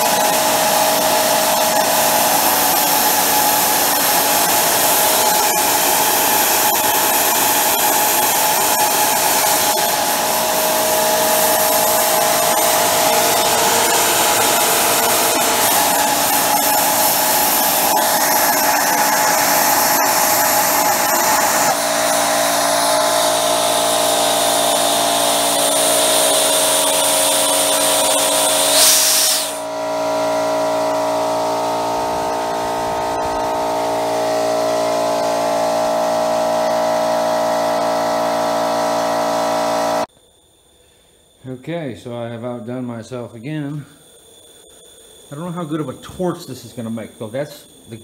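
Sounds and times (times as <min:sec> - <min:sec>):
jet engine rushing and whistling: 0:00.0 - 0:36.7.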